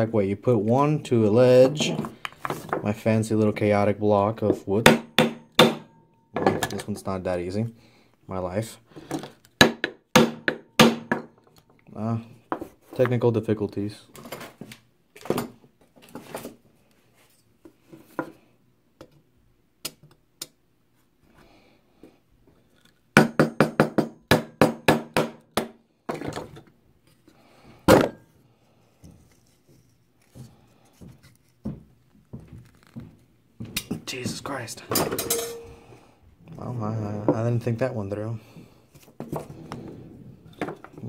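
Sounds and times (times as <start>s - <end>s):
hand tools knocking on wood: 4.5s - 5.9s, 23.2s - 25.8s.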